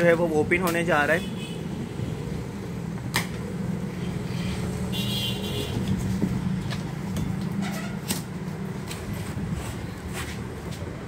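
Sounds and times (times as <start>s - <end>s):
scrape: 9.2s - 10.6s.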